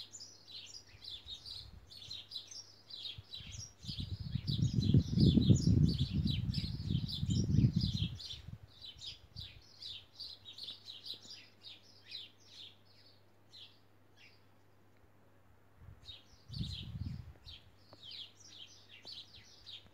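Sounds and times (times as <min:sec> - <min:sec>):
small birds chirping: 0:00.0 - 0:15.1, 0:15.9 - 0:19.9.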